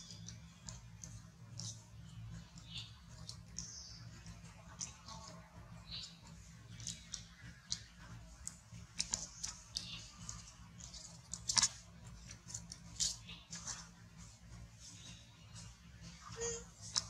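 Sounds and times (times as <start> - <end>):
dry leaf crackling: 0.0 - 15.7.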